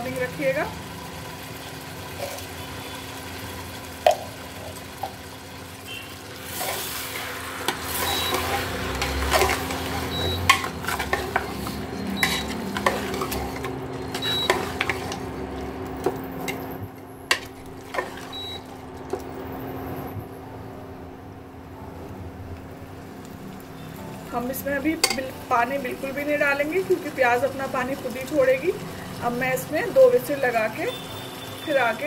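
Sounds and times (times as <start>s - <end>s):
meat and onions sizzling: 0.0s - 19.7s, 23.0s - 32.0s
ladle scraping metal pot: 6.4s - 19.2s.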